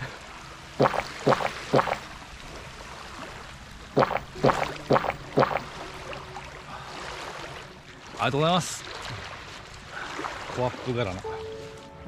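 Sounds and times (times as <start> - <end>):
man gulping a drink: 4.0 - 5.6.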